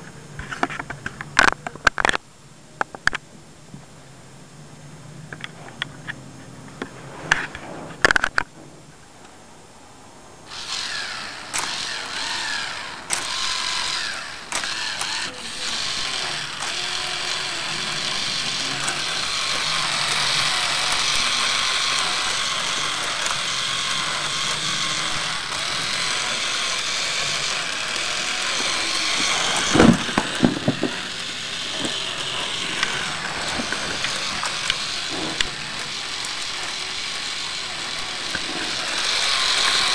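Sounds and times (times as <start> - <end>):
toy engine model whirr and clatter: 10.5 - 39.9.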